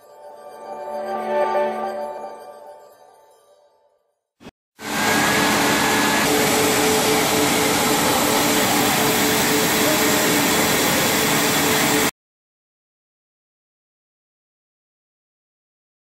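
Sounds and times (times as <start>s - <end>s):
machinery whirring rush: 4.8s - 12.1s.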